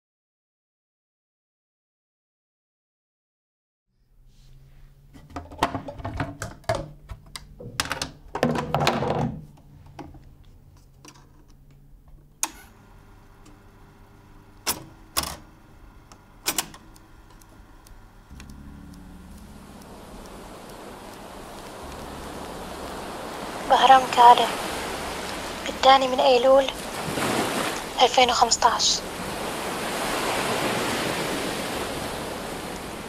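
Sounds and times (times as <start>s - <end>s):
low hum: 3.9s - 8.4s, 9.4s - 33.0s
tape recorder mechanical clatter: 5.2s - 26.9s
sharp control clicks: 14.5s - 26.9s.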